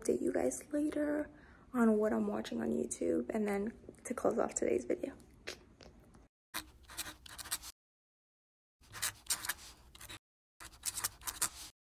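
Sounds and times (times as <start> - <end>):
rapid clicking and scratching: 8.9 - 11.7.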